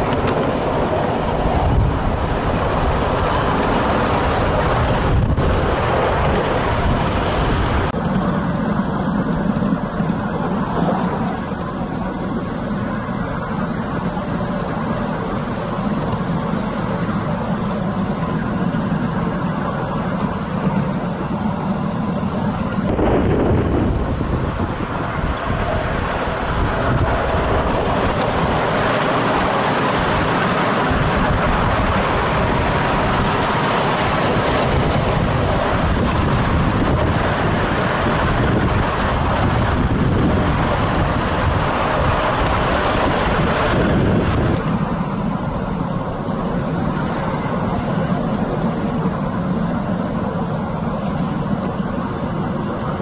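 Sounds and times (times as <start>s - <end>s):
miniature train wheels rumbling: 0.0s - 53.0s
steady rushing noise: 0.0s - 53.0s.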